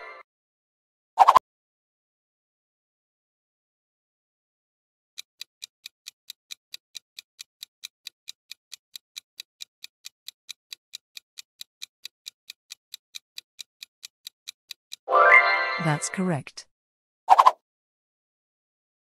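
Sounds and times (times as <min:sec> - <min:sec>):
timer ticking: 0:05.2 - 0:15.1.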